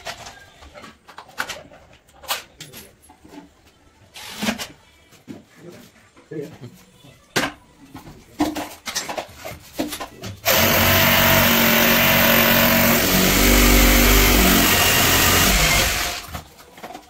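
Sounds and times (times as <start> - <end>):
hand-held power tool running: 10.4 - 16.4.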